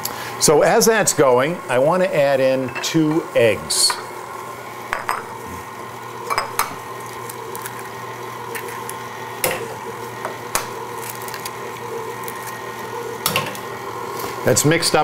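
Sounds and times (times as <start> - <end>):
stand mixer motor running: 4.2 - 15.0
eggs cracking against a bowl: 6.3 - 13.7.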